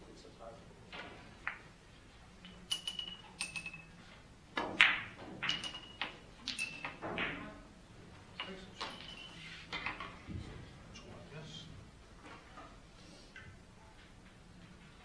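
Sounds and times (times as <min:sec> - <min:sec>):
billiard balls clicking: 0:01.0 - 0:01.8, 0:02.4 - 0:07.5, 0:08.2 - 0:10.2.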